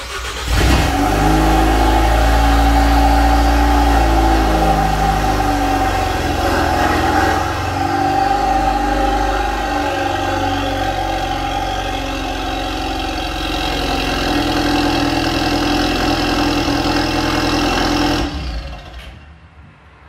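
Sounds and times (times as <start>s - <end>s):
car engine idling: 0.0s - 19.2s.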